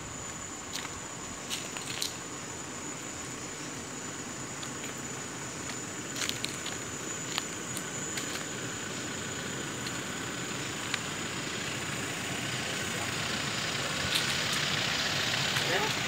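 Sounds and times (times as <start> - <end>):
footsteps crunching dry leaves: 5.6 - 8.6.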